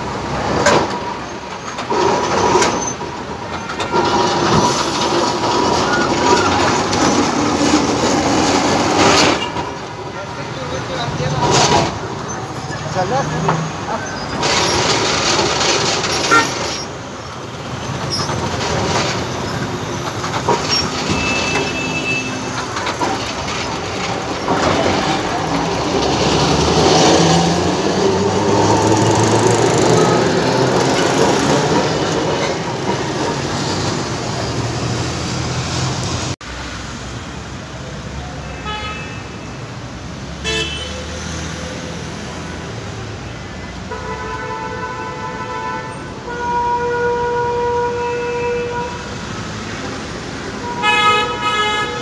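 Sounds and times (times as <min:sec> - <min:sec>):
tram wheels rumbling on rails: 0:00.0 - 0:38.3
street traffic: 0:00.0 - 0:52.0.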